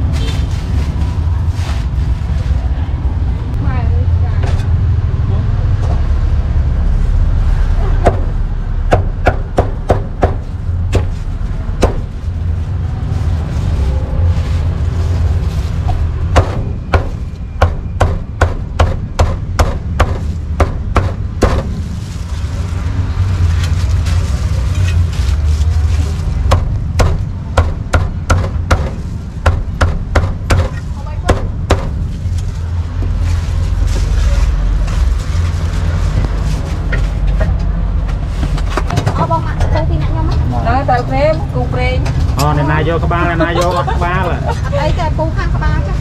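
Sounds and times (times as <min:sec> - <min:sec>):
low rumble: 0:00.0 - 0:46.0.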